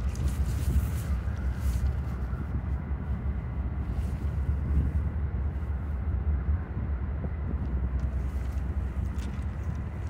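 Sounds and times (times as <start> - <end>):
wind buffeting microphone: 0.0 - 10.0.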